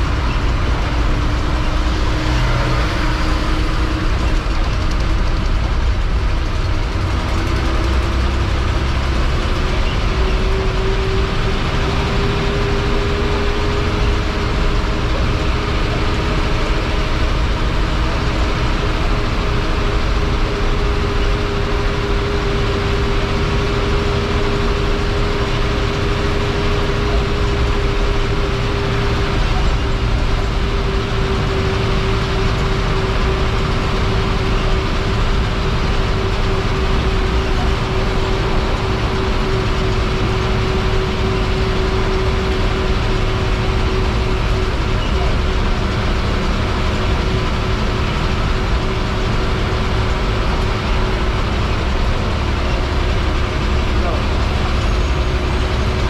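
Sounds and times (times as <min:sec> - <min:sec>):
bus diesel engine drone: 0:00.0 - 0:56.0
tyre and road noise: 0:00.0 - 0:56.0.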